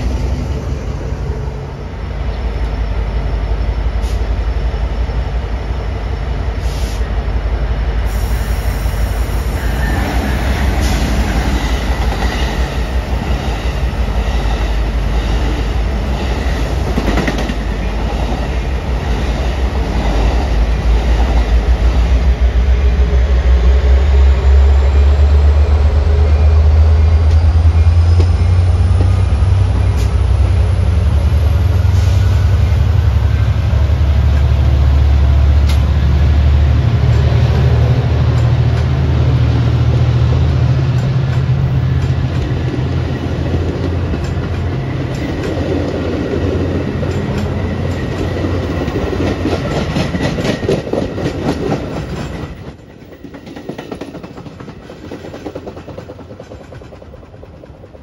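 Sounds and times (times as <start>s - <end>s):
train rumbling: 0.0s - 58.0s
wheels clicking over rail joints: 47.0s - 58.0s.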